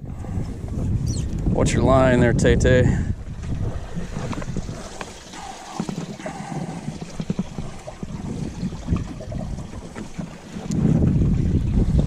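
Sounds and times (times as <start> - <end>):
wind buffeting microphone: 0.0 - 12.0
water lapping against boat hull: 2.9 - 12.0.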